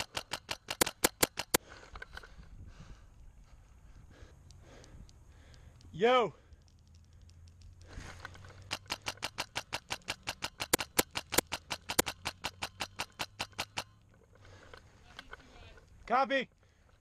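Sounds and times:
airsoft gun firing: 0.0 - 1.6, 8.6 - 13.9.

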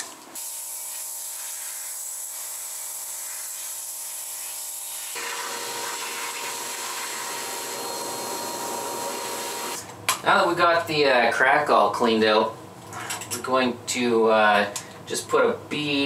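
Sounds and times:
shop vacuum running: 0.0 - 9.9.

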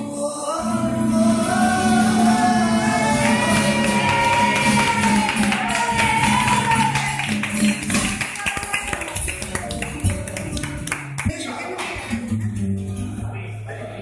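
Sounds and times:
man singing flamenco: 0.0 - 7.2
strummed guitar: 0.0 - 14.0.

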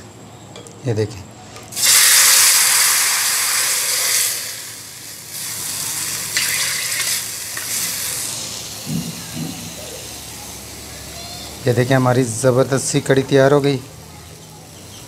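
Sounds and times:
ladle stirring in pot: 6.1 - 8.3.

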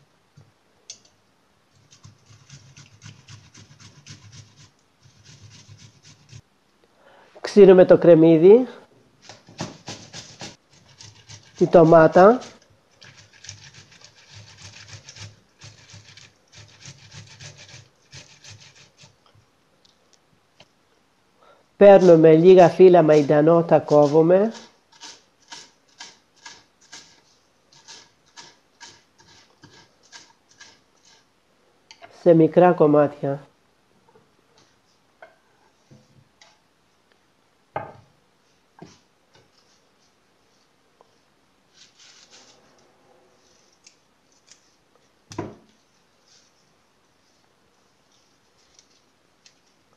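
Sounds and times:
tomato grated on metal grater: 1.9 - 6.4, 9.4 - 19.2, 21.8 - 31.3.

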